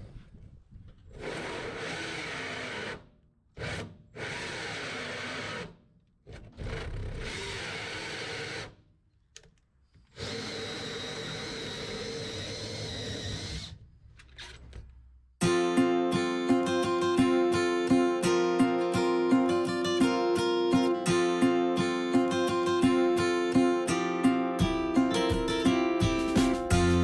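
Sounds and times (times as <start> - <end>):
cordless drill with hole saw cutting: 1.1 - 8.8, 10.1 - 13.8.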